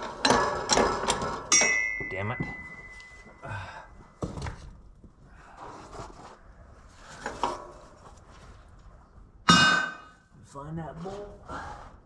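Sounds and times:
loud metal clang: 0.2 - 2.9, 9.5 - 10.2.

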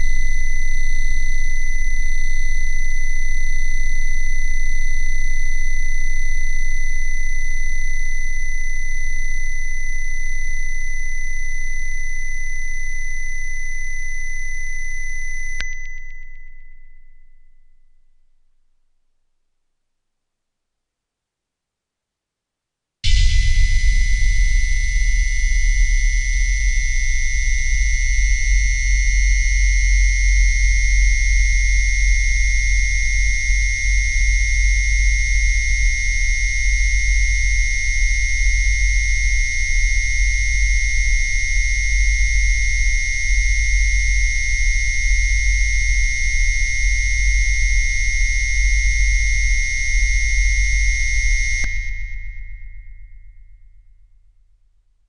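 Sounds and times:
synthesized electronic drone: 23.1 - 30.2.

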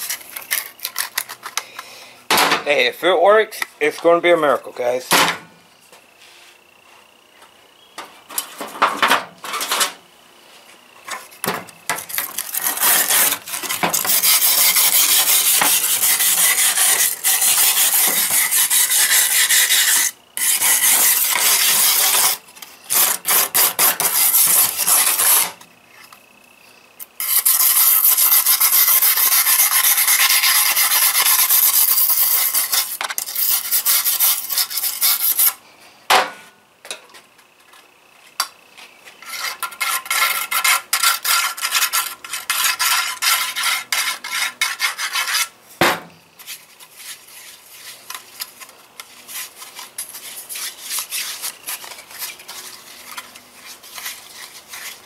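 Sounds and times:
tool rasping on metal: 12.1 - 25.6, 27.2 - 35.6, 39.2 - 45.5.

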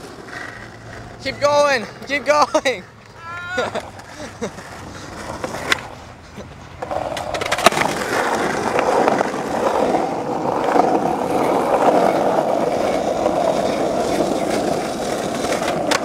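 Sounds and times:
skateboard wheels rolling on asphalt: 0.0 - 16.0.

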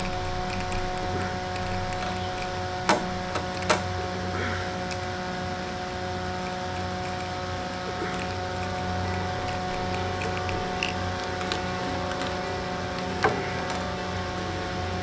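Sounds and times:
sharp clicks: 0.0 - 4.0, 6.4 - 13.9
spline roller scraping ticks: 0.0 - 4.0, 4.8 - 15.0
desk fan humming: 0.0 - 15.0.

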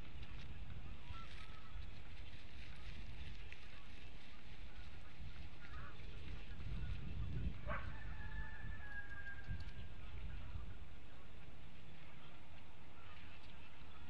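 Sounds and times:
steady low rumble: 0.0 - 8.2.

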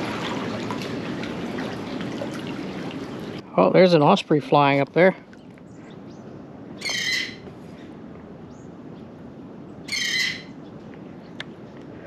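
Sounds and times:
bird whistled chirps: 6.8 - 7.4, 9.9 - 10.5.

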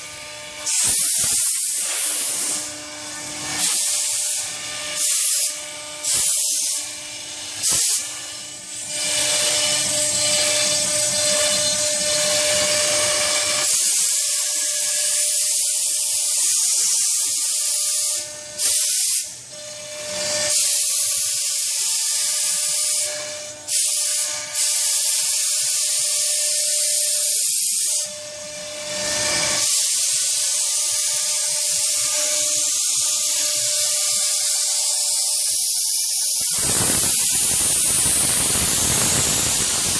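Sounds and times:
router spindle cutting foam: 0.0 - 17.1, 28.0 - 39.9.

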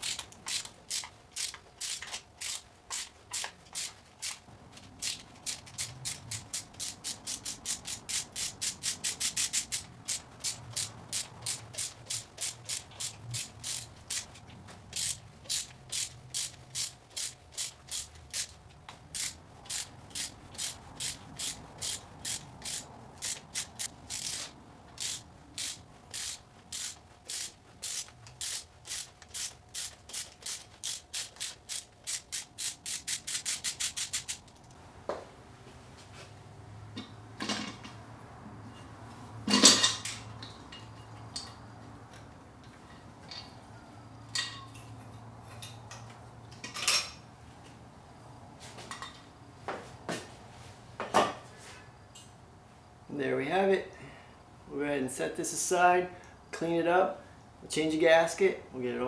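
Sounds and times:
hand ratchet clicking: 0.0 - 4.4, 5.0 - 34.7.

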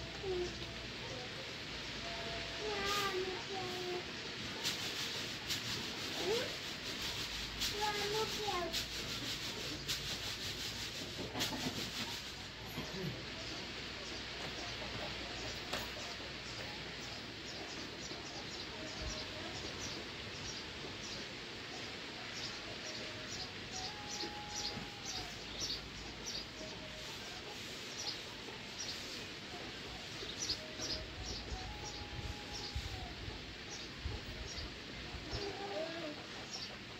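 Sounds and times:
steady background hiss: 0.0 - 36.9
small birds chirping: 0.2 - 36.9.

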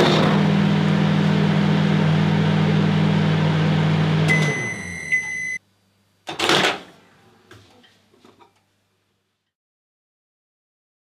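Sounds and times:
microwave oven humming: 0.0 - 5.9
microwave beep: 4.2 - 5.6.

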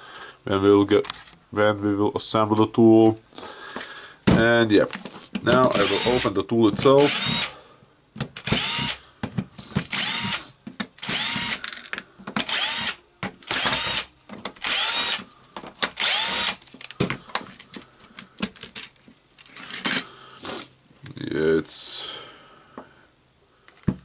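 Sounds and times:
cordless driver whirring: 7.0 - 7.5, 8.4 - 9.0, 9.9 - 10.4, 11.0 - 11.6, 12.4 - 15.2, 16.0 - 16.6.

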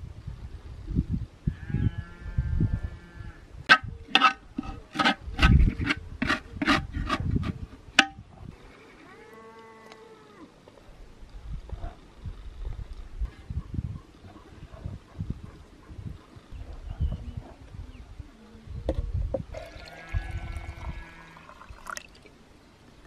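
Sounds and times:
livestock bleating: 1.5 - 3.4, 8.8 - 10.5, 19.6 - 21.5.

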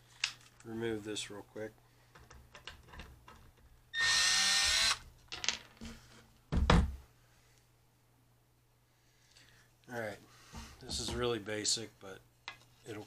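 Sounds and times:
cordless drill running: 4.0 - 5.0.

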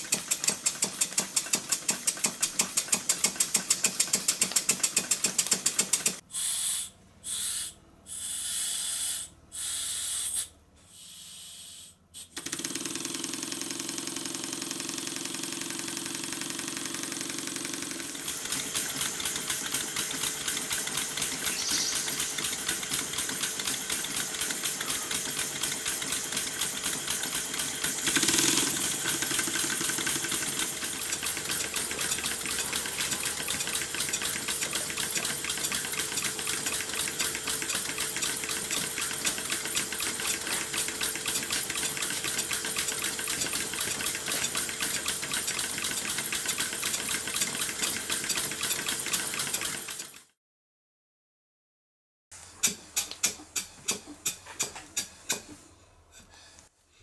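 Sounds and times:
model steam engine exhaust beat: 0.0 - 12.8, 13.5 - 50.1
air hiss: 6.3 - 12.4, 21.4 - 22.8.

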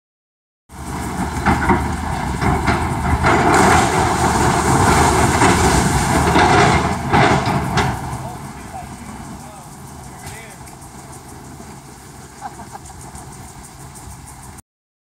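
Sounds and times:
excavator engine rumble: 0.7 - 14.6
wood and metal debris breaking: 1.1 - 9.3.

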